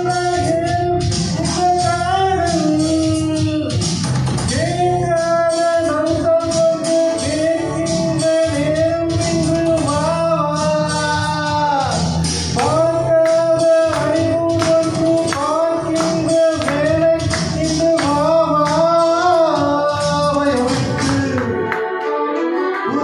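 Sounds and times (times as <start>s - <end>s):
instrumental accompaniment: 0.0s - 23.0s
man singing into microphone: 0.0s - 23.0s
steady percussion beat: 11.2s - 21.9s.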